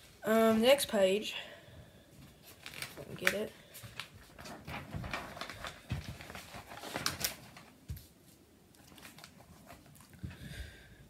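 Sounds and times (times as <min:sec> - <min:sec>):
paper rustling: 0:02.2 - 0:10.4
page turning: 0:02.4 - 0:08.2, 0:08.8 - 0:10.2.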